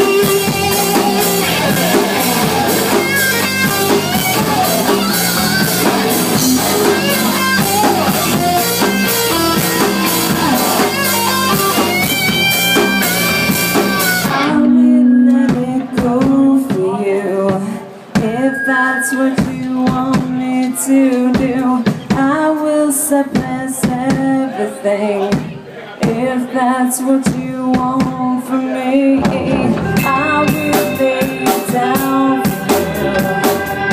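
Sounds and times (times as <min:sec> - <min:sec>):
live rock band playing: 0:00.0 - 0:20.6, 0:29.1 - 0:33.9
person singing: 0:14.4 - 0:25.3, 0:26.1 - 0:33.9.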